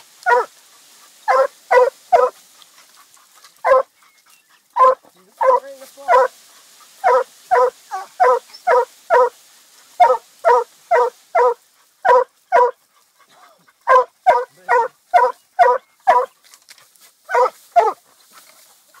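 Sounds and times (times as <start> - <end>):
dog barking: 0.2 - 0.5, 1.3 - 2.4, 3.6 - 3.9, 4.8 - 6.4, 7.0 - 9.4, 10.0 - 12.8, 13.8 - 16.3, 17.3 - 18.0.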